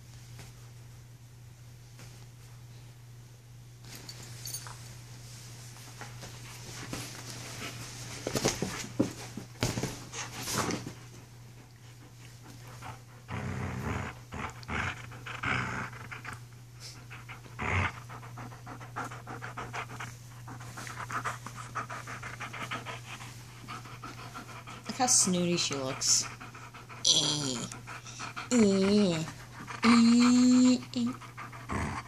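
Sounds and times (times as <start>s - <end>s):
dog panting rapidly: 11.8s - 13.4s, 14.5s - 32.0s.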